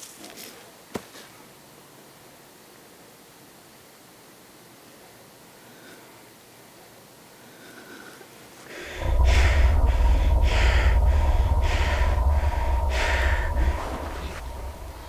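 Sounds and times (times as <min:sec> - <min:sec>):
deep low rumble: 0:08.8 - 0:15.0
steady mid-pitched drone: 0:08.8 - 0:15.0.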